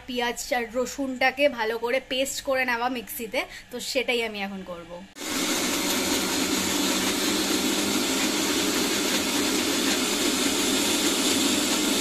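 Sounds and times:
electric mixer grinder running: 5.2 - 12.0.

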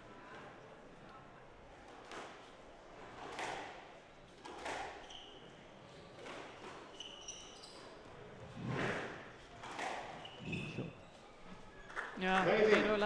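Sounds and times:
shoes squeaking on wooden floor: 4.5 - 12.0.

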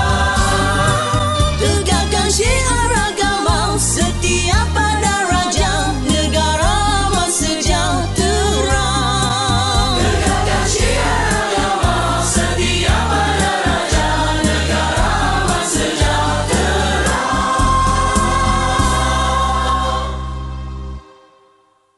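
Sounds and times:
group singing in chorus: 0.0 - 2.1, 9.7 - 20.6
backing track with bass and drums: 0.0 - 20.0.

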